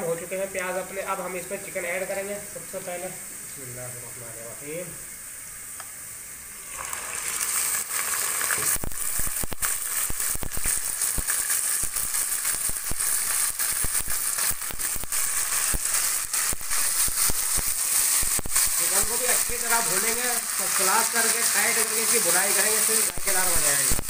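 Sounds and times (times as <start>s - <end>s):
chicken sizzling in hot oil: 4.6s - 24.0s
oil crackling and popping: 6.6s - 24.0s.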